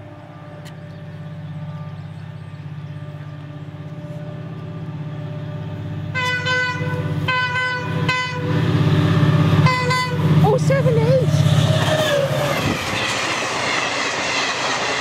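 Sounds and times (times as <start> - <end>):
diesel locomotive engine hum: 0.0 - 15.0
locomotive horn blasts: 6.1 - 8.8, 9.6 - 10.4.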